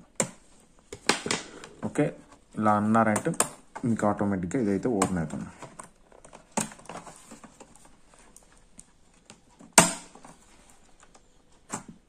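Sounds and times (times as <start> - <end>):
sharp plastic snap: 9.8 - 10.2.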